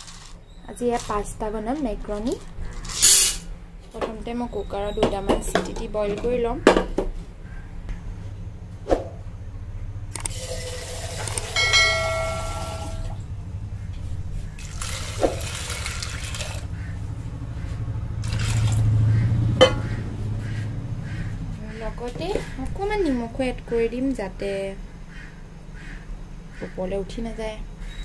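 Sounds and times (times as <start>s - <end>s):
metal clanks: 2.2s - 3.5s, 19.6s - 20.0s
tap water running into pot: 10.3s - 13.2s, 14.6s - 16.7s.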